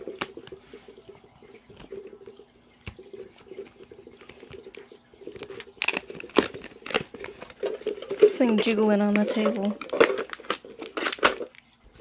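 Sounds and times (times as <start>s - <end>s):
low steady background hum: 0.0s - 12.0s
hands tapping plastic toy can: 5.5s - 11.5s.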